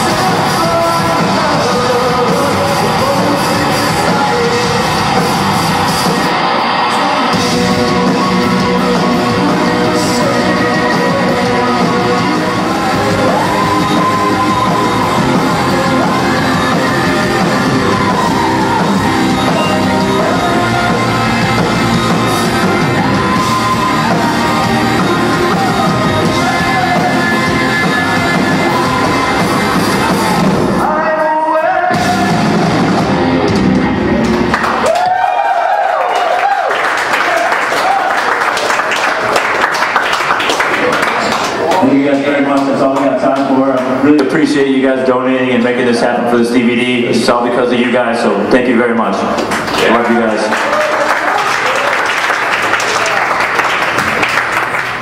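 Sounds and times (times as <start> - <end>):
rock music with singer: 0.0 - 35.4.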